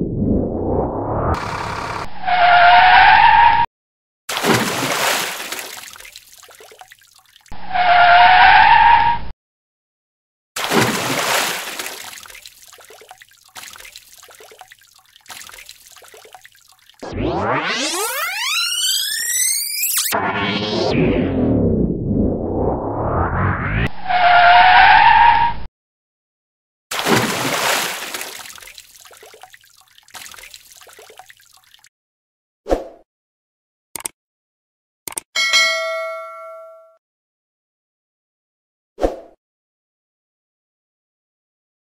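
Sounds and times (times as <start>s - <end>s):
tire screech sound effect: 0.0s - 3.7s, 7.6s - 9.3s, 17.0s - 25.7s
toy truck splashing into water: 4.3s - 7.4s, 10.6s - 17.0s, 26.9s - 31.9s.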